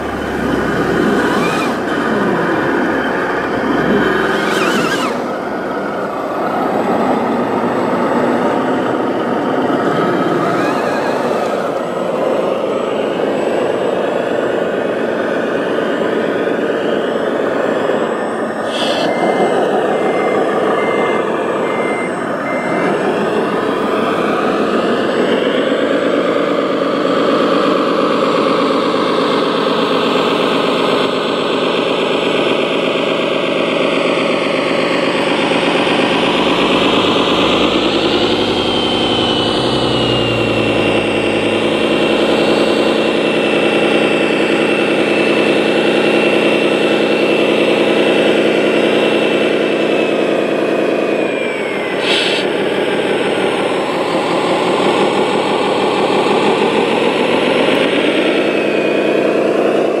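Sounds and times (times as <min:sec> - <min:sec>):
high whine gliding down: 0:00.0 - 0:27.0, 0:27.7 - 1:00.0
toy truck engine running: 0:00.0 - 1:00.0.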